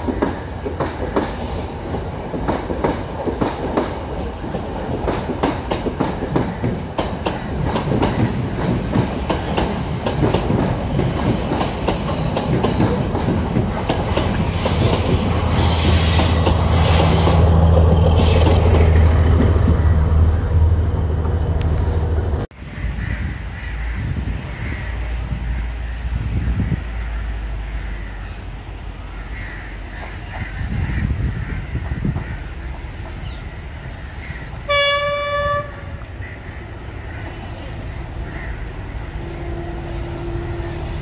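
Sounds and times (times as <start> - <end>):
train wheels clacking over rail joints: 0.0 - 19.8
outdoor background: 0.0 - 41.0.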